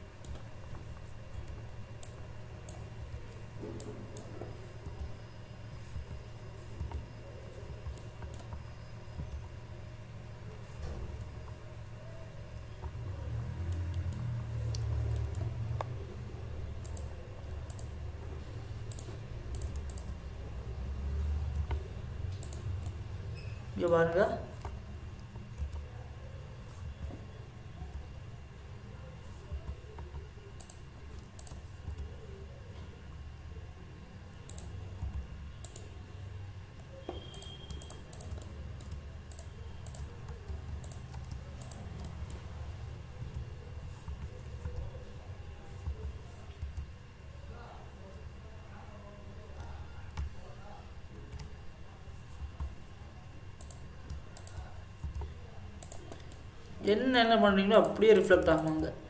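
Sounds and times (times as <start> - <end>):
steady low hum: 0.0 - 59.0
keyboard and mouse clicking: 7.7 - 8.6, 13.6 - 16.0, 16.7 - 18.0, 18.9 - 20.2, 21.5 - 23.0, 25.5 - 26.0, 29.5 - 32.2, 34.3 - 36.0, 36.8 - 42.4, 43.2 - 45.0, 53.6 - 56.4.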